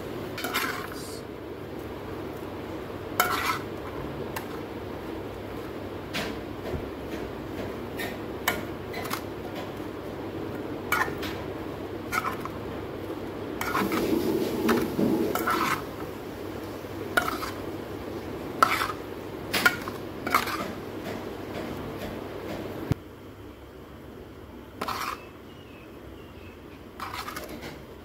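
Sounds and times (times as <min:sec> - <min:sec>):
vegetables rustling: 0:11.9 - 0:20.8, 0:27.0 - 0:27.7.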